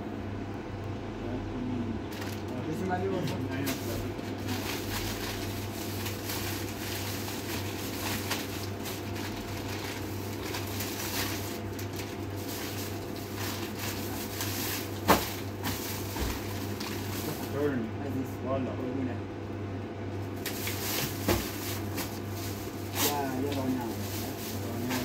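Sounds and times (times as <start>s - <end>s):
steady low hum: 0.0s - 25.0s
plastic bags rustling: 2.1s - 17.8s, 20.2s - 25.0s.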